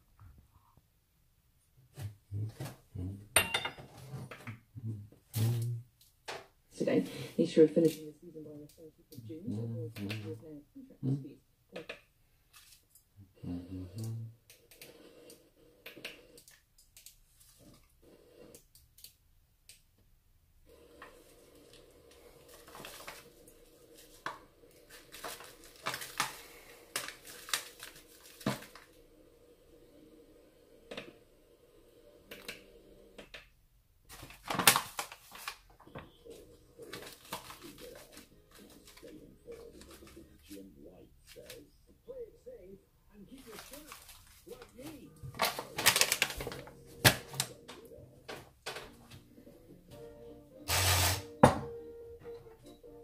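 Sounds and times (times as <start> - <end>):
paper bag crinkling: 21.2 - 29.0, 34.1 - 40.6, 43.3 - 47.8.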